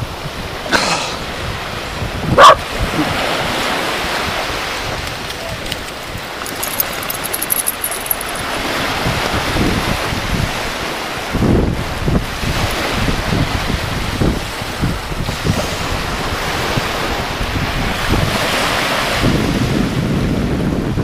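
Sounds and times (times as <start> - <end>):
surf breaking on shore: 0.1 - 21.0
dog barking: 2.4 - 2.7.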